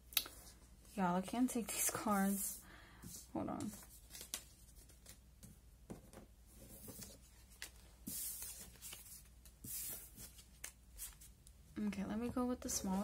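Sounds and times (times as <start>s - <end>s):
paper rustling: 3.6s - 5.2s, 6.6s - 11.4s.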